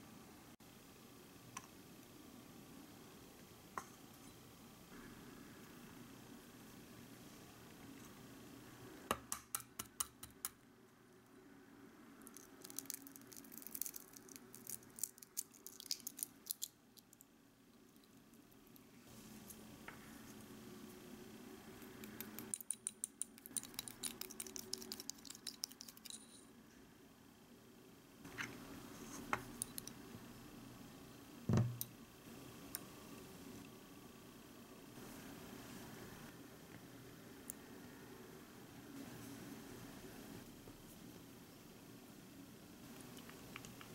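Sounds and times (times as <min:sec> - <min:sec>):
eggshell crackling: 0:12.2 - 0:18.9, 0:21.8 - 0:26.1.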